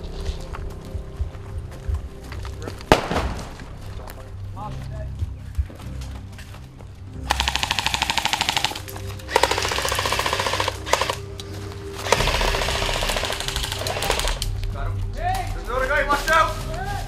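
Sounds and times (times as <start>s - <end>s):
background music: 0.0s - 17.0s
airsoft rifles firing bursts: 7.3s - 11.2s, 12.0s - 14.5s.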